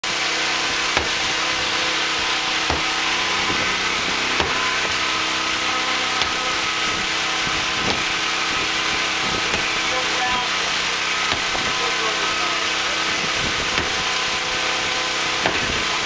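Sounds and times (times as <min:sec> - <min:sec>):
machine drone and hiss: 0:00.0 - 0:16.0
tool knocking on brick fireplace: 0:00.9 - 0:01.3, 0:02.6 - 0:03.7.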